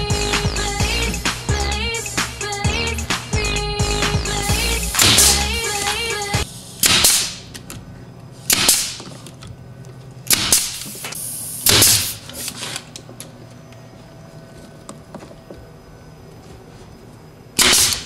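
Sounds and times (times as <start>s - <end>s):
pneumatic nailer shots: 4.6s - 7.6s, 8.4s - 9.2s, 10.3s - 12.9s, 17.6s - 18.0s.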